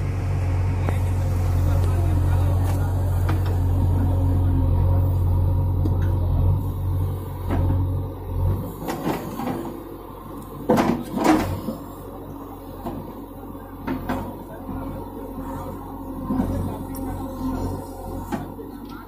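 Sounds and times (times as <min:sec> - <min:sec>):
diesel engine running: 0:00.0 - 0:19.0
backhoe arm clanking knocks: 0:10.6 - 0:11.7.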